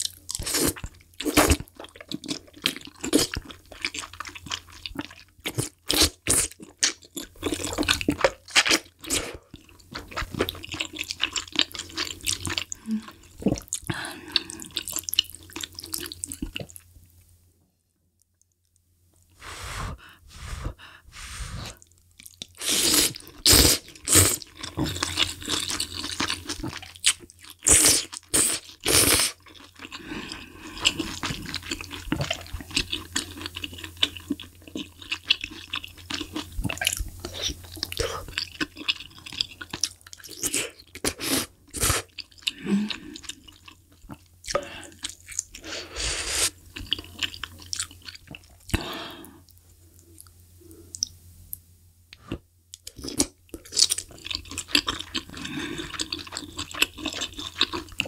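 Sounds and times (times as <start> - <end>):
chewing: 0.0 - 16.9, 21.8 - 41.1, 42.0 - 45.7, 46.8 - 48.9, 52.2 - 58.0
slurping soup and noodles: 19.5 - 21.8, 22.5 - 25.6.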